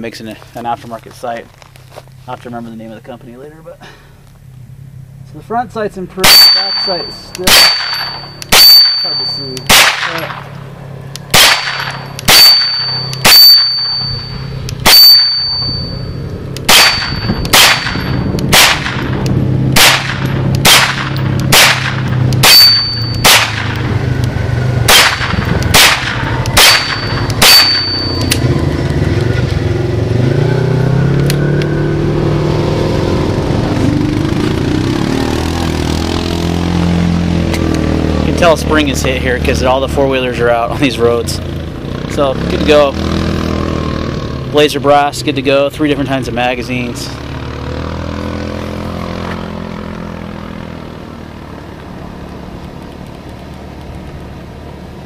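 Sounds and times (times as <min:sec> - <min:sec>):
four-wheeler engine revving: 0:04.7 - 0:55.0
carbine firing single shots: 0:06.2 - 0:10.6, 0:11.2 - 0:14.1, 0:16.6 - 0:23.9, 0:24.8 - 0:28.4
short metallic ding: 0:06.3 - 0:07.3.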